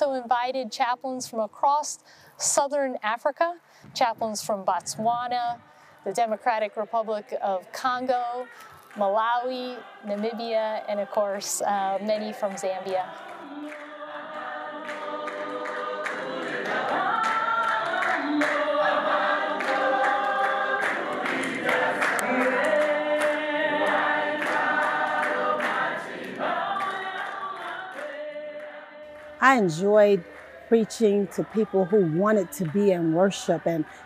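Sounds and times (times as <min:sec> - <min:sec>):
congregation singing a hymn: 0:04.1 - 0:34.0.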